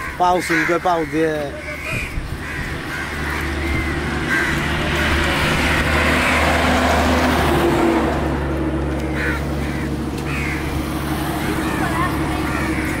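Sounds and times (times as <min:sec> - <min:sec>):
low engine hum: 0:01.4 - 0:13.0.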